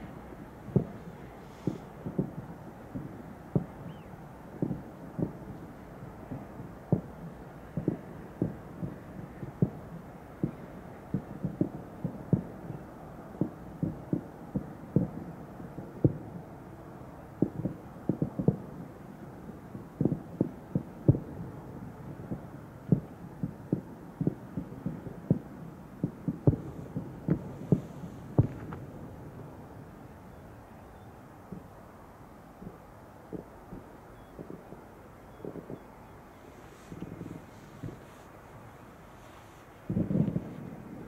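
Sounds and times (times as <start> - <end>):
fireworks booming: 0.0 - 16.4, 19.5 - 29.8, 32.6 - 41.0.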